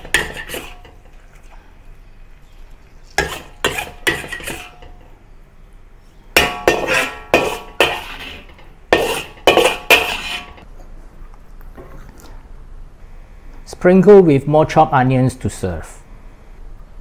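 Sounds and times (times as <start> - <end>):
metal spatula scraping a wok: 0.0 - 1.2, 3.1 - 5.1, 6.4 - 10.7.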